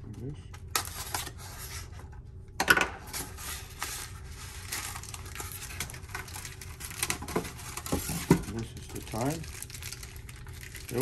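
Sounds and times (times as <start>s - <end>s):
plastic wrapping crinkling: 3.2s - 11.0s.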